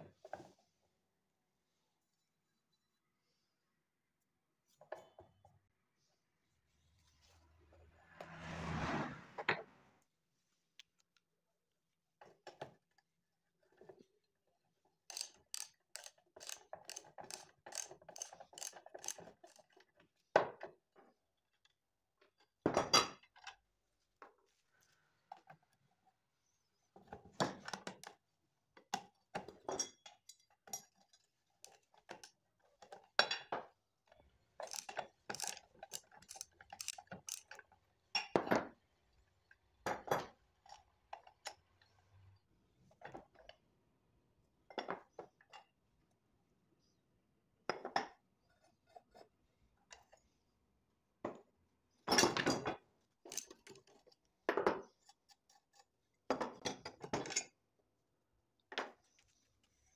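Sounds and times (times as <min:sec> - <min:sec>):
ratchet wrench clicking: 0:15.1 - 0:19.2, 0:34.6 - 0:37.5
metal parts clinking: 0:34.6 - 0:37.6.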